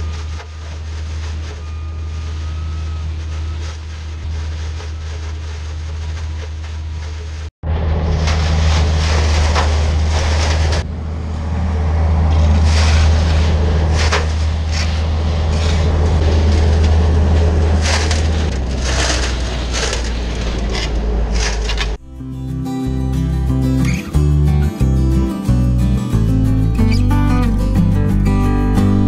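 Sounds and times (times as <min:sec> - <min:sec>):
hay blower droning: 0:00.0 - 0:21.2.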